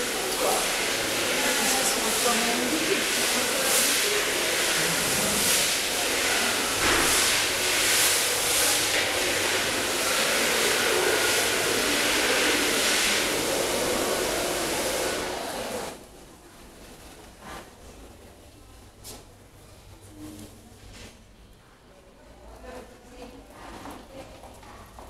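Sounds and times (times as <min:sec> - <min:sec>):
loud steady hissing: 0:00.0 - 0:16.0.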